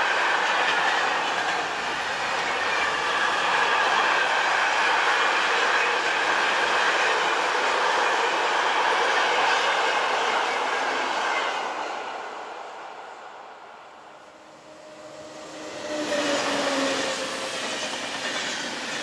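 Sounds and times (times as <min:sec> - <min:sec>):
train wheels on rails: 0:00.0 - 0:19.0.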